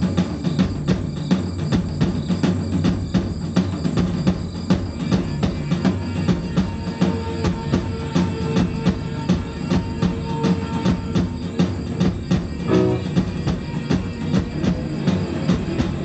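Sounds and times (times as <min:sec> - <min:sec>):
stick-beaten hand drum: 0:00.0 - 0:16.0
live rock band playing: 0:12.6 - 0:13.4
electric guitar held note: 0:12.7 - 0:13.1.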